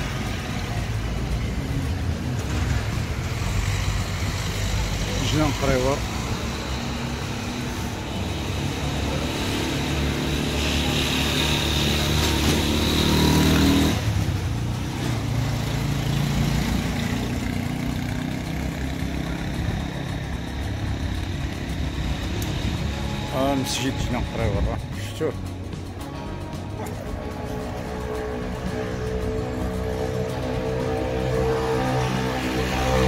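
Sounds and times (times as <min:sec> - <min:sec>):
vehicle engine running: 0:00.0 - 0:33.0.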